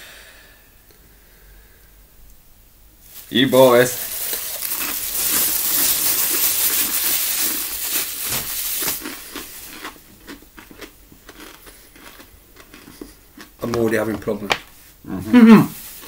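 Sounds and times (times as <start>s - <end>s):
plastic baggies rustling and crinkling: 3.0s - 16.0s
chip pieces crackling: 3.2s - 14.7s.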